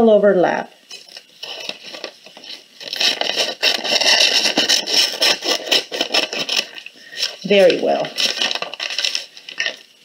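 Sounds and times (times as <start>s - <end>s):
scissors snipping paper: 1.4s - 9.2s.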